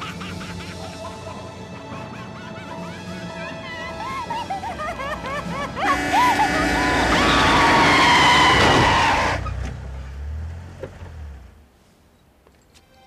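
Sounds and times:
car horn blaring: 5.8 - 7.4
tyres screeching: 5.9 - 9.8.

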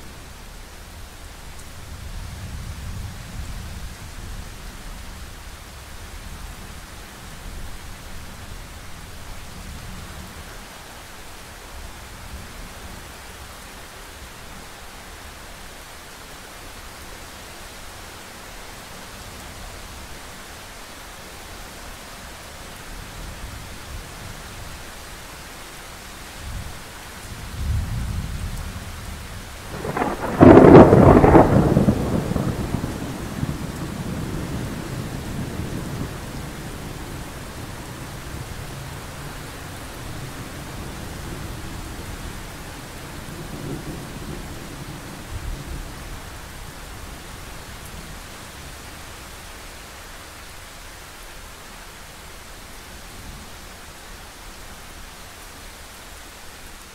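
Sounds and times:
steady rain: 0.0 - 56.9
thunder rumbling: 29.2 - 46.1
loud thunderclap: 29.6 - 36.4.

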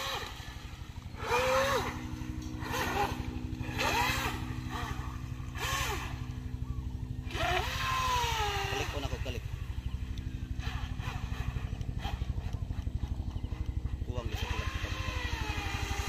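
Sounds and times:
electric motor whine: 0.0 - 16.0
low hum: 0.0 - 16.0.

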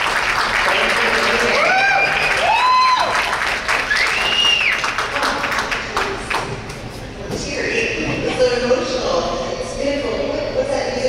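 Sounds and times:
audience applauding: 0.0 - 6.7
whooping cheers: 1.2 - 4.9.

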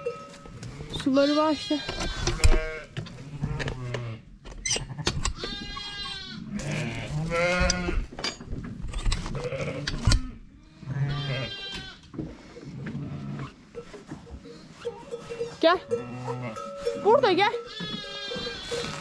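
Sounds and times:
sheep and lambs bleating: 1.0 - 8.1, 9.3 - 12.1, 13.0 - 13.6, 14.8 - 19.0.

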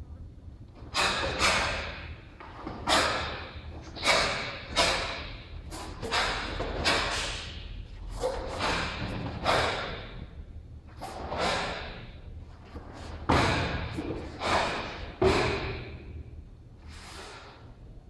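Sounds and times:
bare feet thudding on mats: 12.7 - 15.8.

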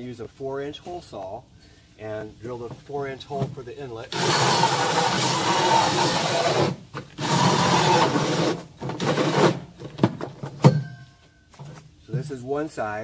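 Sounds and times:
hole saw cutting plastic: 4.1 - 9.6.

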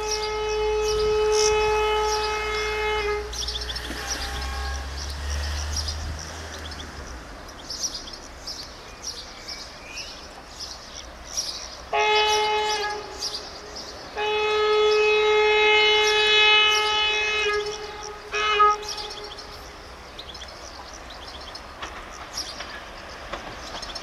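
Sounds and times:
locomotive horn blasts: 0.0 - 5.2, 11.9 - 13.4, 14.1 - 19.6
birds chirping: 0.0 - 24.0.

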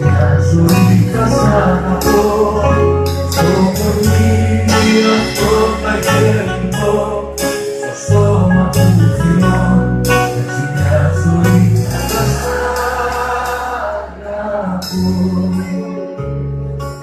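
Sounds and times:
live band playing pop: 0.0 - 17.0
cymbal crashes: 4.7 - 7.0.

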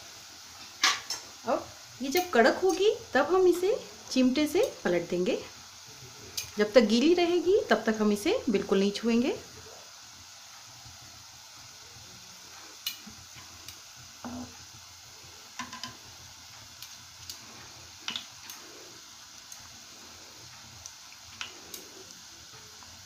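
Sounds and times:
batter sizzling in hot fat: 0.0 - 23.0
sharp pops and crackles: 12.8 - 14.6, 15.5 - 19.8, 20.4 - 22.2.

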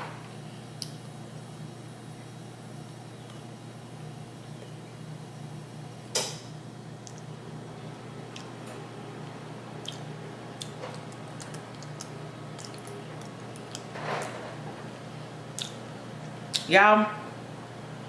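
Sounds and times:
steady low hum: 0.0 - 18.0
person chewing with wet clicks: 7.0 - 7.4, 8.3 - 8.8, 9.8 - 13.9, 15.5 - 16.7.

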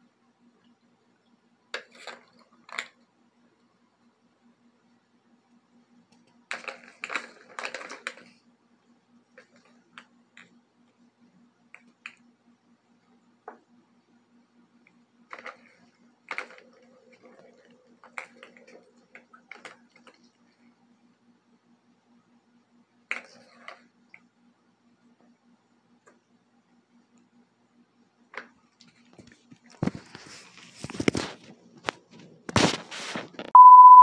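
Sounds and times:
plastic balls rattling in toy track: 1.7 - 3.0, 6.4 - 8.4, 15.3 - 20.4.

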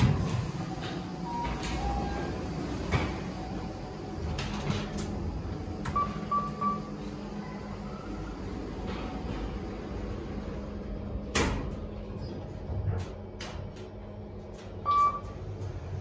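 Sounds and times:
sliding doors opening: 0.0 - 7.4.

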